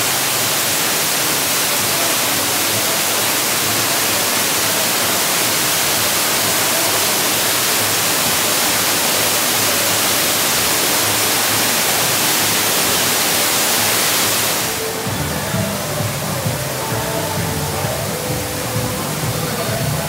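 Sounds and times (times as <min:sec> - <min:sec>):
loud rushing noise: 0:00.0 - 0:20.0.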